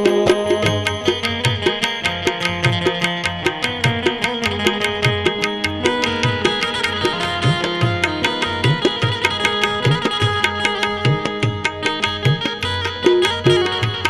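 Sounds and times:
harmonium melody: 0.0s - 14.0s
sharp metallic ticks: 0.0s - 14.0s
tabla beat: 0.0s - 14.0s.

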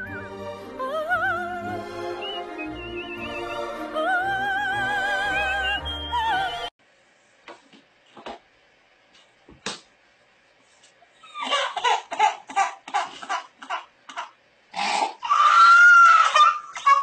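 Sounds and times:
opera singing: 0.6s - 6.7s
baby squealing and grunting: 11.2s - 13.2s, 14.8s - 17.0s.

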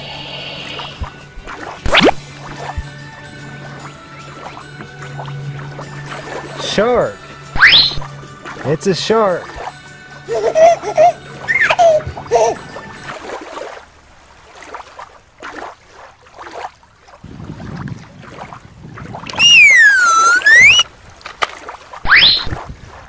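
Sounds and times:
faint wind: 0.0s - 1.6s, 10.8s - 23.0s
water noise: 0.0s - 23.0s
gliding whistle sound effect: 7.6s - 8.0s, 19.4s - 20.9s, 22.1s - 22.5s
quick rising whistle: 7.6s - 8.0s, 19.4s - 20.9s, 22.1s - 22.5s.

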